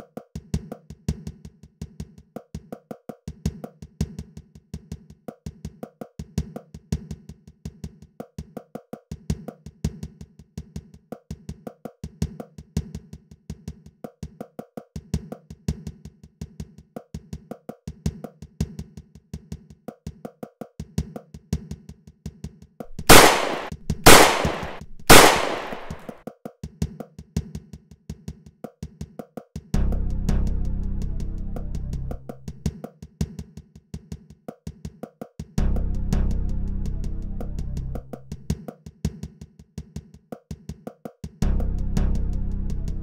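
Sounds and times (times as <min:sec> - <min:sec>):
echoing gunshots: 0:22.9 - 0:26.1.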